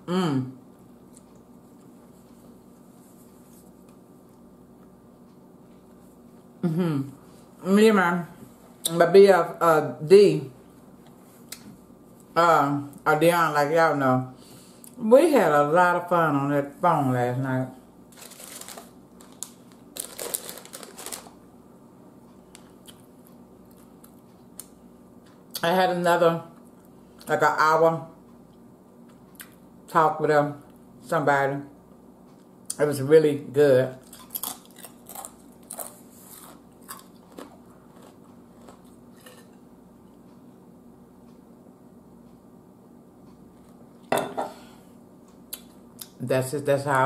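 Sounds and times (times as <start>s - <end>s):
chip bag crinkling: 18.1s - 21.4s
potato chip crunching: 18.1s - 21.4s, 34.0s - 39.5s
quiet chewing: 34.0s - 40.5s.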